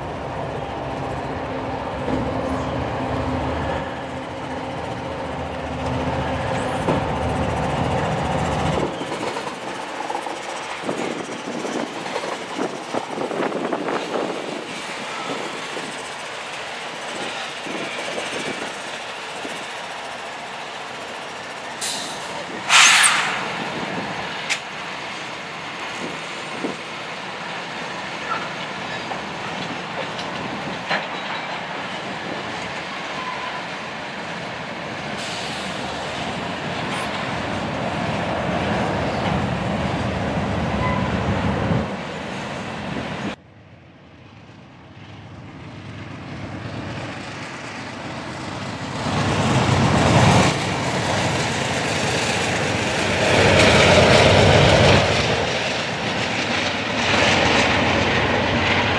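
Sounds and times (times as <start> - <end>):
approaching passenger train: 0.0 - 58.9
freight train rumbling past: 0.0 - 58.9
loud metal clank: 22.7 - 23.7.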